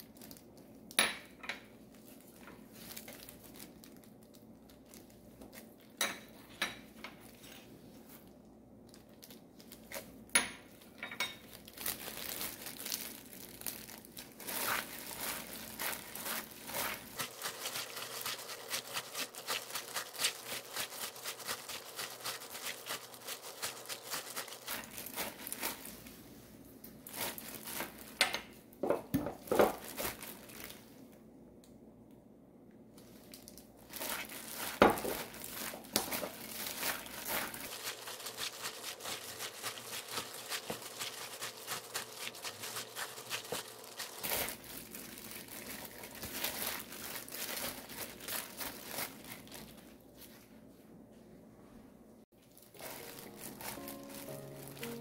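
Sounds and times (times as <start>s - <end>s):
plastic gloves crinkling: 0.0s - 31.3s, 32.9s - 50.8s, 52.3s - 55.0s.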